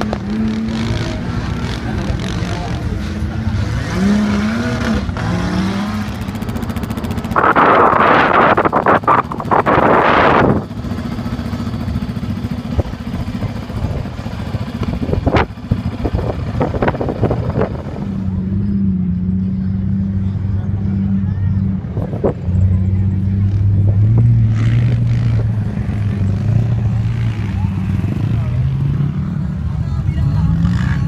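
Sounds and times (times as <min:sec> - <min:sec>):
loud rush of noise: 0:00.0 - 0:18.4
vehicle engines humming: 0:00.0 - 0:31.0.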